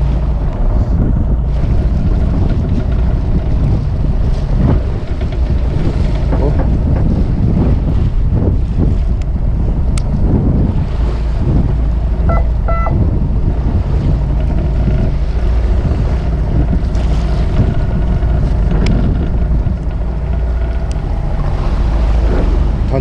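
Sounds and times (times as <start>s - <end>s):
boat engine rumble: 0.0s - 23.0s
waves against a hull: 0.0s - 23.0s
wind buffeting the microphone: 0.0s - 23.0s
brief high tone: 12.3s - 13.0s.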